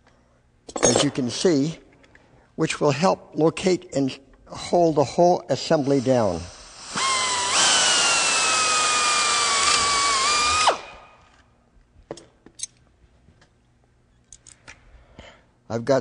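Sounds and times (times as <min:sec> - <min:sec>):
air drill whining through metal: 0:05.7 - 0:11.3.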